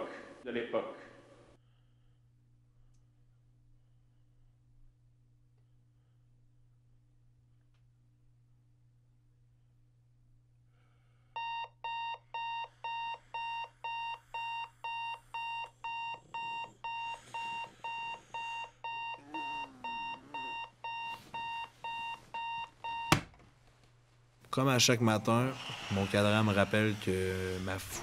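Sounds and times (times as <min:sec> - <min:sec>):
alarm clock beeping: 0:11.4 - 0:23.2.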